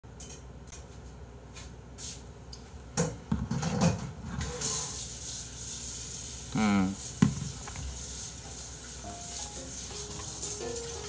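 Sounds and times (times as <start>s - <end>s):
objects knocking on a desk: 7.2s - 7.8s.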